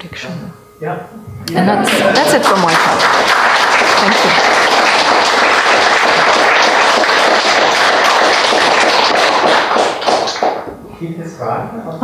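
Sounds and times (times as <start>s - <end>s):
audience applauding: 1.8s - 10.7s.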